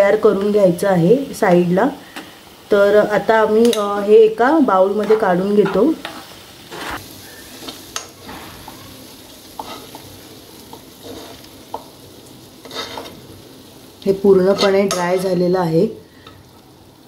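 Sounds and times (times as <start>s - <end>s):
faint steady hiss: 0.0s - 17.0s
spoon scraping a pan: 4.9s - 11.9s, 12.6s - 13.3s, 14.4s - 15.4s.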